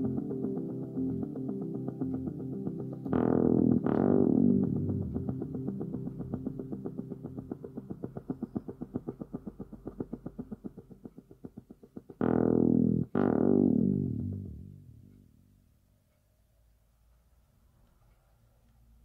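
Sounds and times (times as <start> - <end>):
loud held synth notes: 0.0 - 10.1, 12.2 - 15.3.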